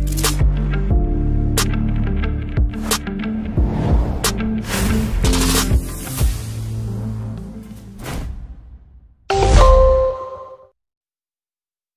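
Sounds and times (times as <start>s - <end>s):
electronic music: 2.6s - 6.8s
short whoosh: 2.8s - 5.3s.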